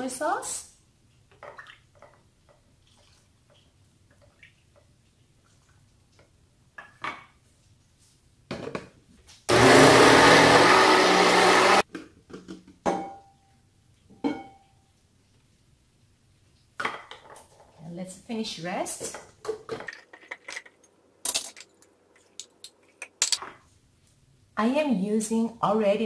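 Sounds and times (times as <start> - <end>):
blender running: 9.5 - 11.8.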